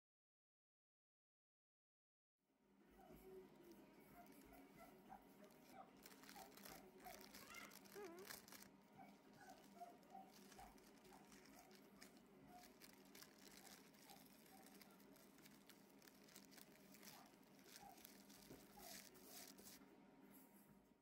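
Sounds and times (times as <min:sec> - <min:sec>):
baking paper crinkling: 0:03.0 - 0:19.8.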